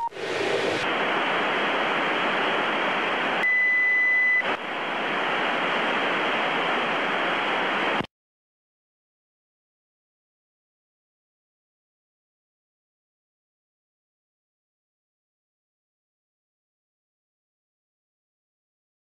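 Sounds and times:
radio channel hiss: 0:00.0 - 0:08.1
high beep: 0:03.4 - 0:04.5.

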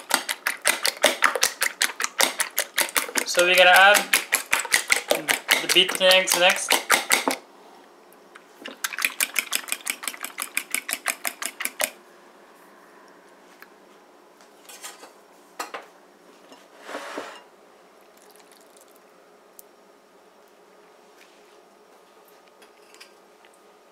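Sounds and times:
fork beating eggs in bowl: 0:00.0 - 0:07.4, 0:08.7 - 0:12.0
bowl scraping: 0:16.4 - 0:17.5.

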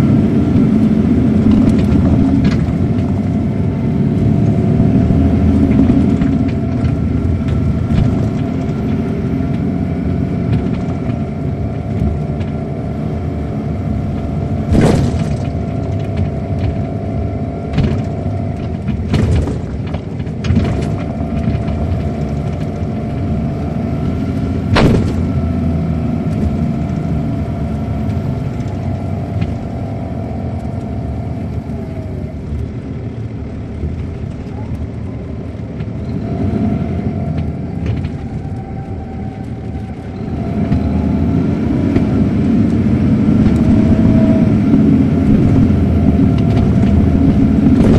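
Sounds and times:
diesel bus engine: 0:00.0 - 0:47.9
road rumble: 0:00.0 - 0:47.9
steady whine: 0:00.0 - 0:47.9
bus body knocking: 0:05.0 - 0:12.6, 0:14.1 - 0:26.9.

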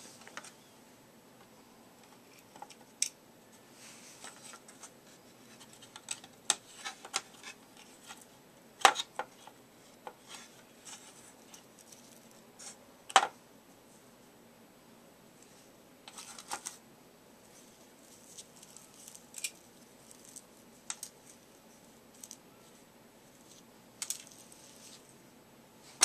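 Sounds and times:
plastic parts clicking and scraping: 0:05.5 - 0:13.3, 0:16.1 - 0:16.8, 0:18.2 - 0:21.4.

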